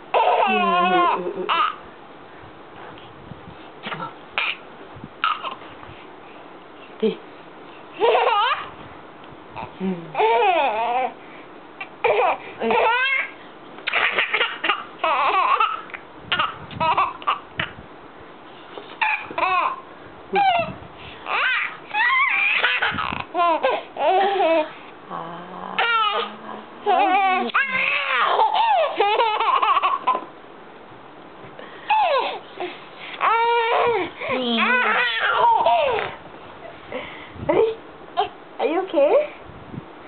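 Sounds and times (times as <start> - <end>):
baby laughing: 0.1 - 1.8, 4.4 - 4.6, 5.2 - 5.6, 8.0 - 8.7, 9.6 - 11.1, 11.8 - 17.8, 19.0 - 19.8, 20.4 - 20.7, 21.3 - 24.7, 25.8 - 30.3, 31.9 - 36.2
baby squealing: 0.1 - 1.8, 4.4 - 4.6, 5.2 - 5.6, 8.0 - 8.7, 12.0 - 17.7, 19.0 - 19.8, 20.4 - 24.7, 25.8 - 26.3, 26.9 - 30.2, 31.9 - 32.4, 33.2 - 36.2.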